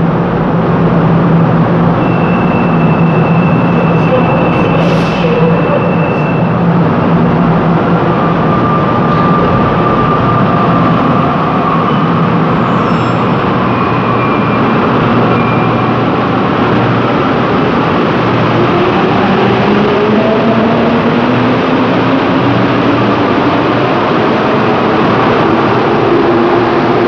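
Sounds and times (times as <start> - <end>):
train doors closing: 1.8 - 7.0.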